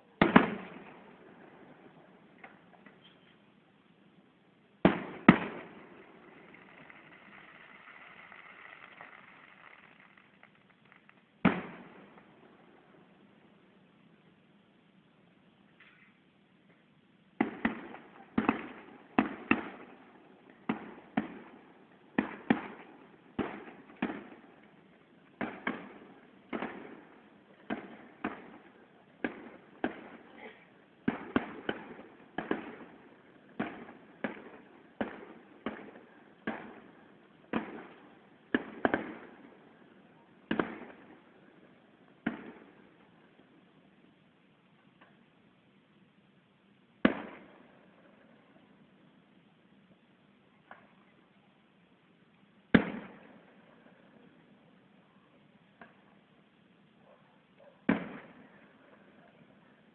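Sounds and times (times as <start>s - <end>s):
firework bangs echoing: 0.2s - 2.7s, 4.8s - 12.7s, 17.4s - 43.1s, 47.0s - 48.2s, 52.7s - 53.4s, 57.8s - 59.1s.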